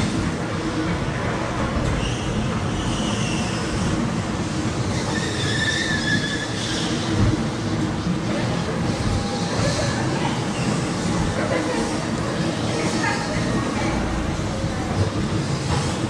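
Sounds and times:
ride train rumbling on track: 0.0 - 16.0
high wheel squeals: 1.9 - 3.9, 4.8 - 7.2.

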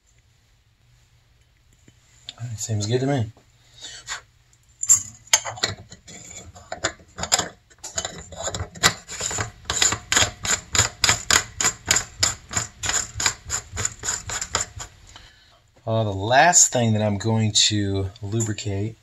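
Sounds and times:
aerosol can mixing ball clicking: 6.6 - 15.2.

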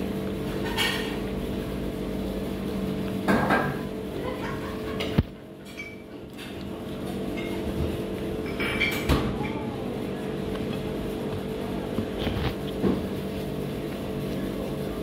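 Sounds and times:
steady background hum: 0.0 - 15.0
tableware clinking: 5.6 - 6.6, 8.4 - 9.6.

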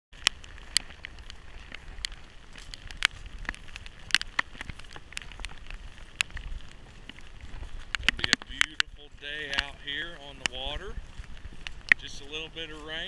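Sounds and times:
raindrops ticking on camera: 0.1 - 13.0.

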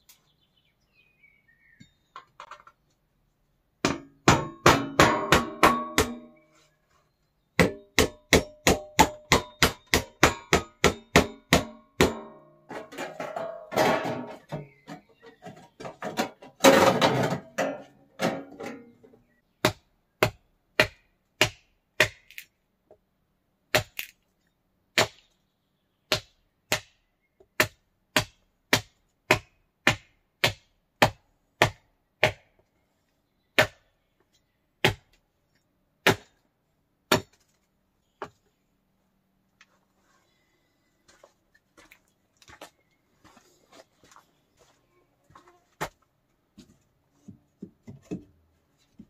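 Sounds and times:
hand tool knocking on wood: 7.6 - 12.4.

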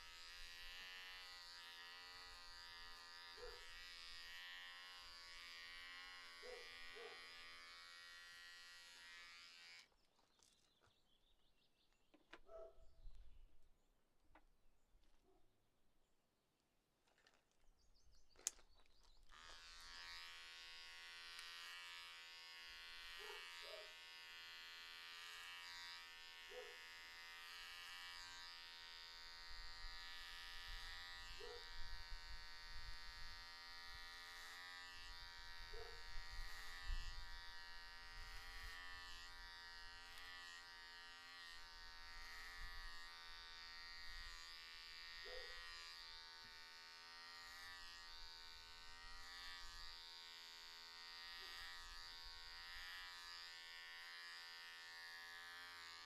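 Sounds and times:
electric hair clippers buzzing: 0.0 - 9.9, 19.2 - 56.0
click: 18.4 - 18.7.

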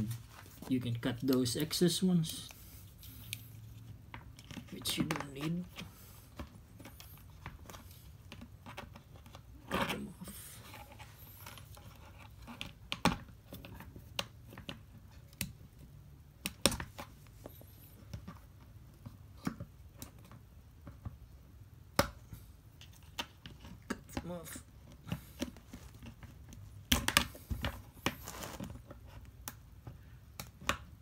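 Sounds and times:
handling rustle: 27.4 - 29.1.

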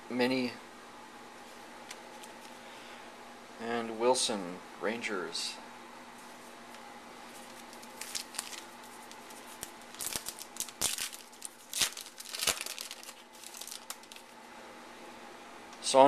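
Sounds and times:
foil wrapper crinkling and tearing: 7.3 - 14.4.

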